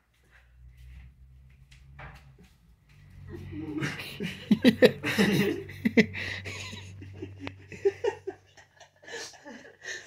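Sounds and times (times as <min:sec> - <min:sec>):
low steady hum: 0:00.2 - 0:09.6
soft laughter and giggling: 0:03.3 - 0:10.0.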